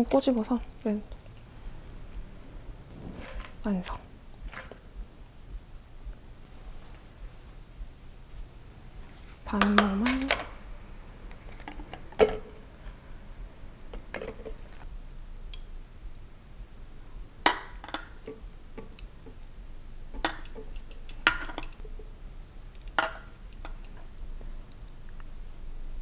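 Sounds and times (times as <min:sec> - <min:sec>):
measuring spoons knocking on cup: 0:20.2 - 0:21.8
light kitchen clinks: 0:20.2 - 0:22.0.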